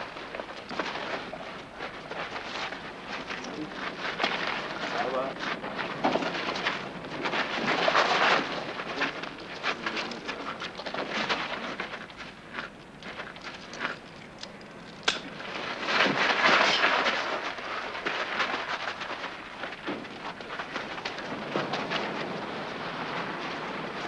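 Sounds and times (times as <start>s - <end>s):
shoes scraping on gravel: 15.3s - 24.0s.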